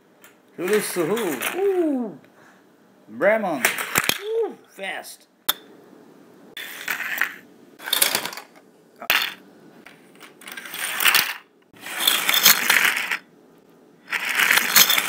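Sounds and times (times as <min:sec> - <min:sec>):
toy cars scraping on plastic track: 0:06.6 - 0:08.4, 0:10.4 - 0:13.2, 0:14.1 - 0:15.0.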